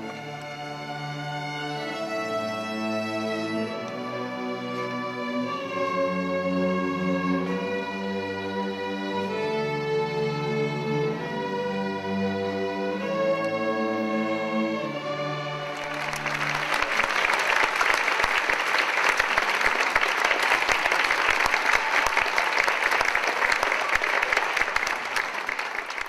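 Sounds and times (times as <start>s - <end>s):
string orchestra chords: 0.0s - 25.7s
audience applause: 15.7s - 26.0s.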